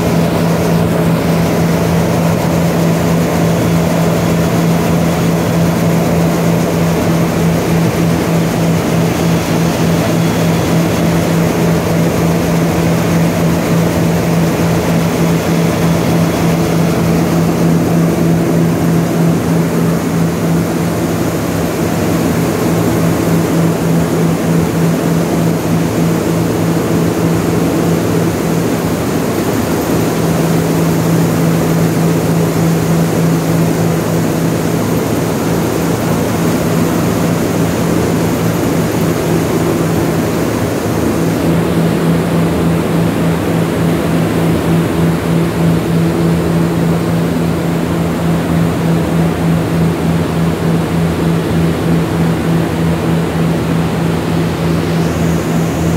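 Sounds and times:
machinery humming: 0.0 - 55.9.

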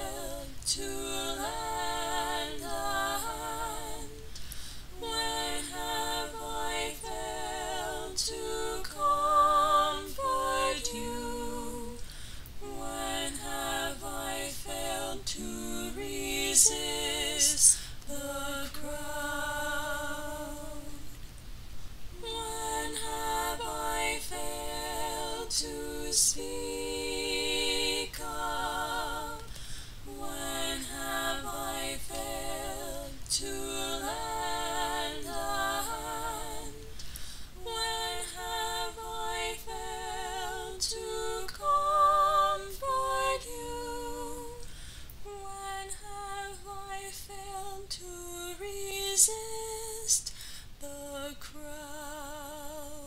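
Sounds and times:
second voice singing harmony: 0.0 - 4.3
woman singing with vibrato: 0.0 - 21.2, 22.2 - 44.6, 45.3 - 53.0.

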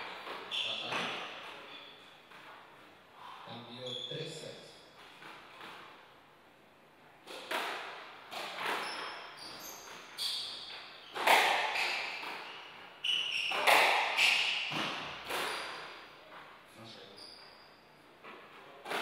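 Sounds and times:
shoes squeaking on wooden floor: 0.0 - 2.8, 8.3 - 19.0
squash ball cracking off rackets: 11.1 - 12.5, 13.4 - 16.0.

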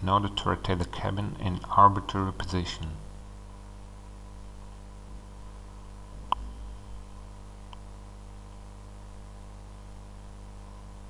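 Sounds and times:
steady low hum: 0.0 - 11.0
faint tick: 6.3 - 6.5.

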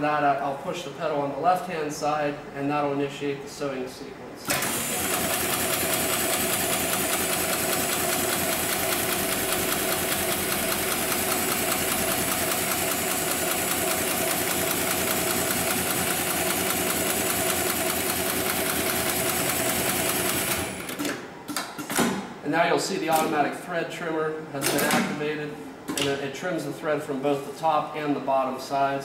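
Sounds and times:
sewing machine stitching fast: 4.5 - 21.2.

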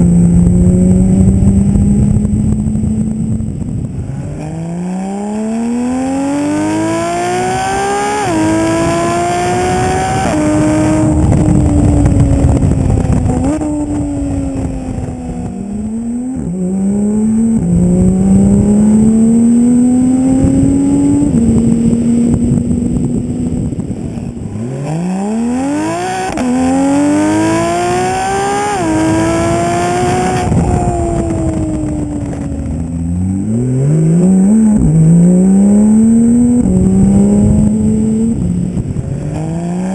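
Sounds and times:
car engine revving through gears: 0.0 - 39.9.

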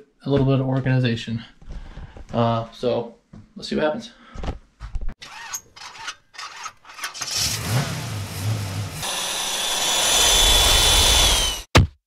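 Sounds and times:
motor revving with high whine: 7.4 - 11.7.

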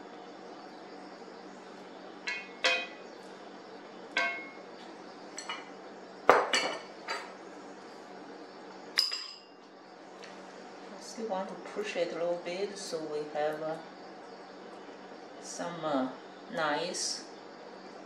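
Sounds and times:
utensils clinking on skillet: 2.3 - 3.0, 4.2 - 4.6, 5.4 - 5.7, 9.0 - 9.5.

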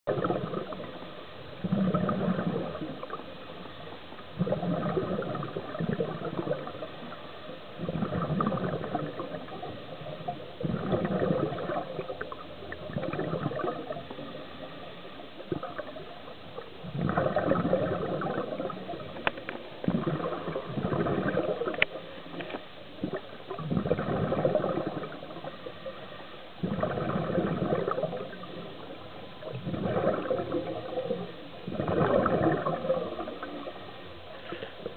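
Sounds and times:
exhaled bubbles gurgling: 0.1 - 34.9.

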